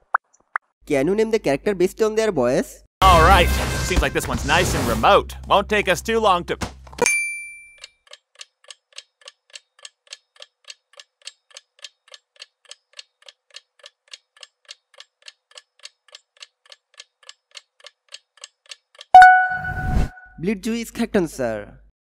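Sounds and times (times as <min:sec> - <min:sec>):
clock ticking: 0:08.0 - 0:19.6.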